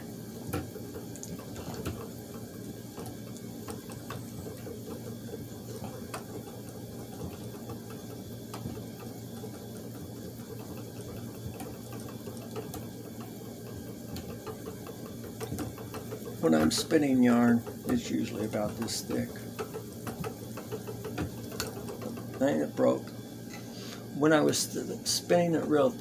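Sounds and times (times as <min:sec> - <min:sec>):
spinning wheel whirring: 0:00.0 - 0:23.5, 0:24.1 - 0:26.0
light clicks and knocks: 0:11.4 - 0:22.6.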